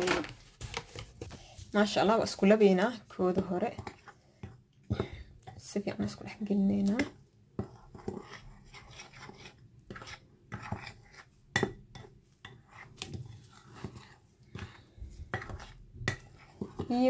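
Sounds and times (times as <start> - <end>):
utensil scraping a ceramic bowl: 7.6 - 17.0.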